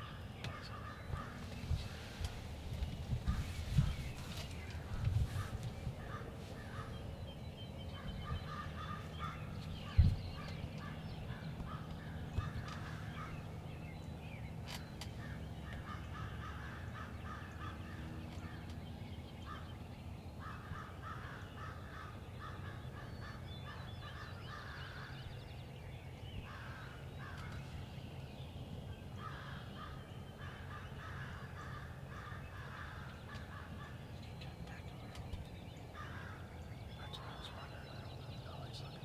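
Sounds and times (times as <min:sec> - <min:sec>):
low steady hum: 0:00.0 - 0:39.0
crows cawing: 0:05.4 - 0:06.9, 0:08.5 - 0:09.5, 0:10.8 - 0:13.4, 0:15.2 - 0:18.6, 0:20.4 - 0:25.2, 0:26.5 - 0:27.6, 0:29.2 - 0:34.1, 0:36.0 - 0:36.5.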